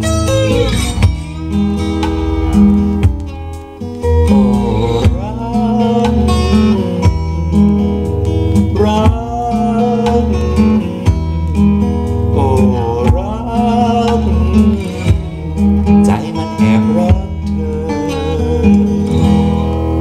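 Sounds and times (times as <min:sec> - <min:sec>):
sliding lead melody: 0:00.0 - 0:20.0
steady bass line: 0:00.0 - 0:20.0
strummed acoustic guitar: 0:00.0 - 0:20.0.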